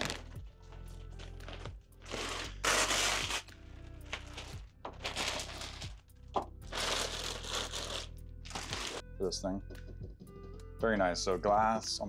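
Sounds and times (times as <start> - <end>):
plastic film crinkling: 0.0 - 0.3, 1.2 - 6.0, 6.7 - 9.0
background music: 0.0 - 12.0.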